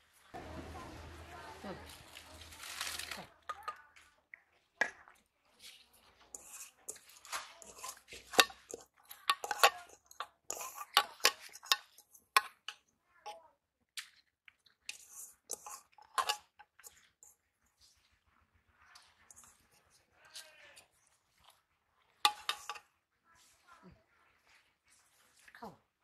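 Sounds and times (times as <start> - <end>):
calf chewing straw: 0.2 - 3.5, 5.5 - 9.8
metal pot and lid clinking: 6.3 - 12.8, 14.9 - 17.0, 22.3 - 22.9.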